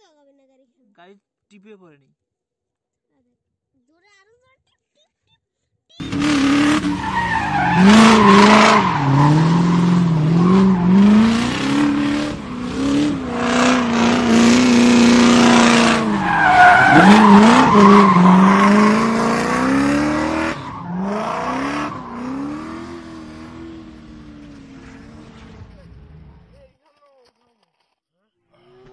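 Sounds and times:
tyre squeal: 0:06.0 - 0:11.3, 0:15.4 - 0:19.2
race car engine revving: 0:06.0 - 0:26.5.

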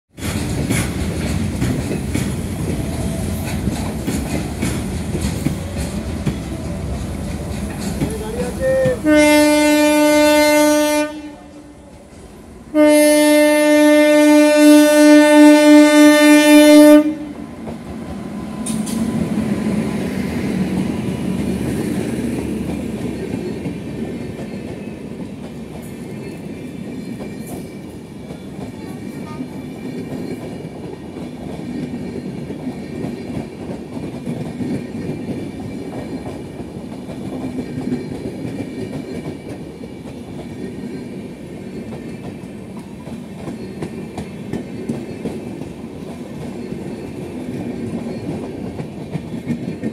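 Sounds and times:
train wheels clacking over rail joints: 0:00.1 - 0:10.2, 0:16.1 - 0:49.9
locomotive horn blast: 0:08.8 - 0:11.8, 0:12.7 - 0:17.3.

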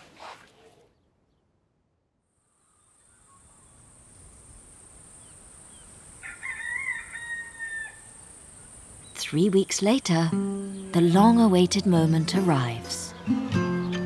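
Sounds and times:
rooster crowing: 0:06.2 - 0:08.2.

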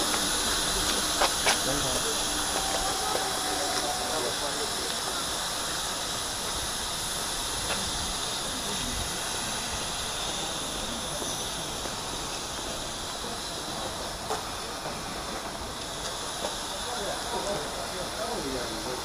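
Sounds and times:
steam locomotive hissing: 0:00.0 - 0:19.0.

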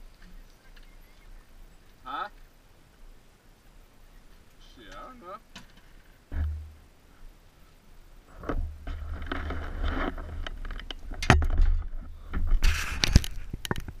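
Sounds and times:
rustling: 0:00.0 - 0:14.0
sharp knocks: 0:05.5 - 0:06.8.

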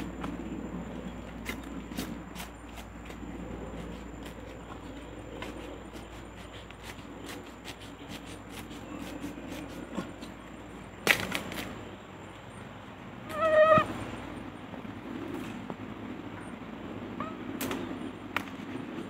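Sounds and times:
sharp stem crack: 0:11.0 - 0:11.7
bamboo stems clicking: 0:11.0 - 0:11.8.

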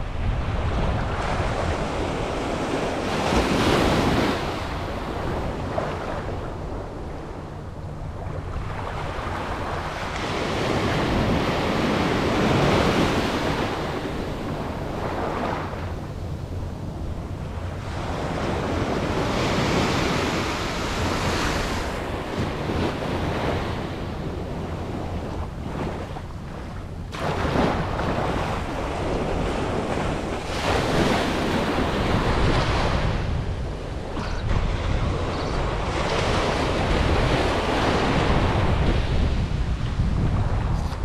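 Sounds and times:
wind rumble on microphone: 0:00.0 - 0:41.0
small waves breaking on sand: 0:17.8 - 0:39.9.

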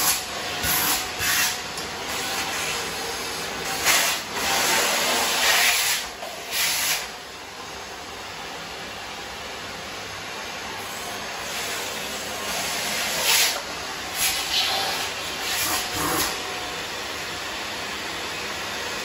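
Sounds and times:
vacuum cleaner hissing: 0:00.0 - 0:19.0.

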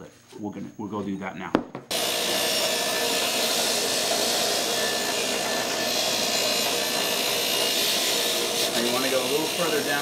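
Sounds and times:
wire brush wheel grinding metal pipe: 0:01.9 - 0:10.0.

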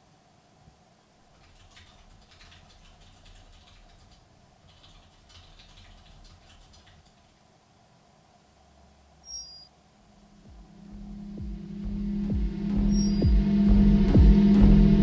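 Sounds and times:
keyboard typing: 0:01.3 - 0:07.4.

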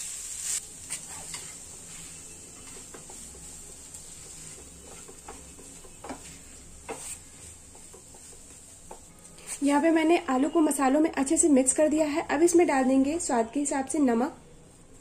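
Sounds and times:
faint steady hiss: 0:00.0 - 0:10.6
spatula scraping frying pan: 0:00.4 - 0:09.8.

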